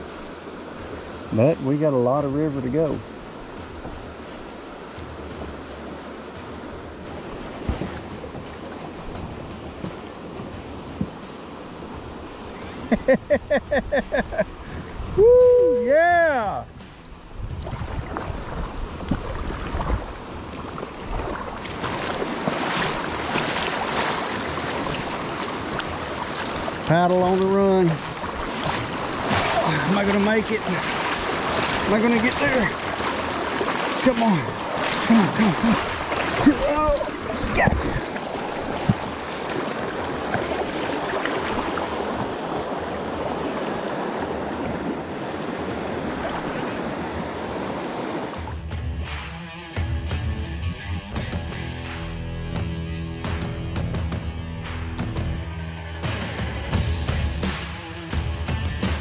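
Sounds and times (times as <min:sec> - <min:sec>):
water rushing over rocks: 0:00.0 - 0:48.6
wind rumble on microphone: 0:13.6 - 0:15.8, 0:16.7 - 0:26.9, 0:35.9 - 0:48.5
knock on kayak: 0:38.7 - 0:39.1.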